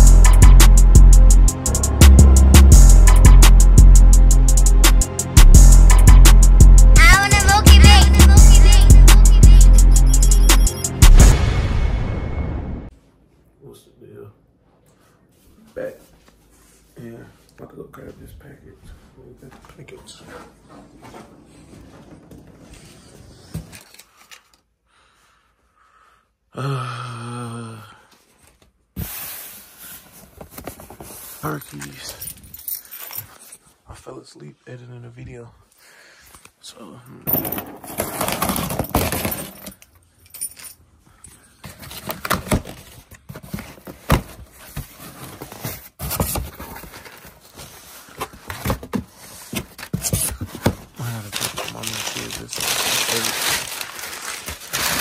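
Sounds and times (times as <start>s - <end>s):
cardboard package rustling: 41.6s - 55.0s
packing paper crinkling: 50.9s - 55.0s.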